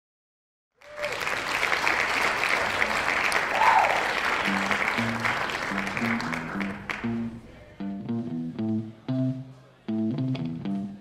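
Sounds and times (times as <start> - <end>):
audience clapping and cheering: 0.8 - 7.6
person whooping: 3.5 - 4.7
electric guitar and bass playing: 4.4 - 11.0.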